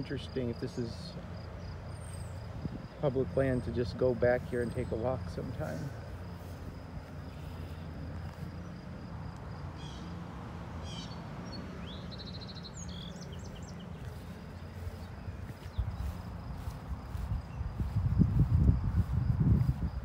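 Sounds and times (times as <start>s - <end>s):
footsteps swishing through grass: 4.5s - 8.7s, 12.8s - 20.0s
bird chirps: 10.8s - 18.4s
steady low rumble: 12.8s - 20.0s.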